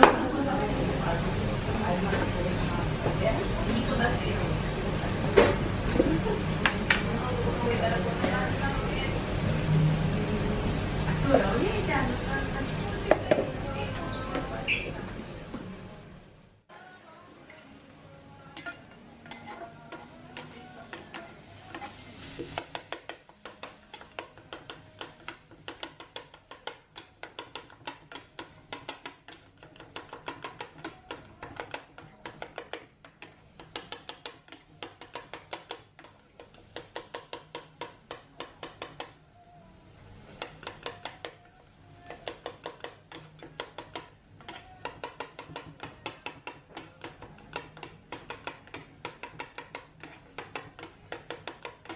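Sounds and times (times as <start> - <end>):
low sizzle: 0.0 - 51.9
metal utensils scraping grill plate: 18.6 - 22.4.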